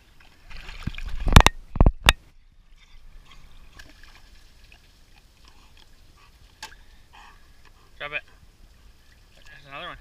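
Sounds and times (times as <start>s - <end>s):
pool water splashing: 0.0s - 10.0s
faint water lapping: 2.3s - 10.0s.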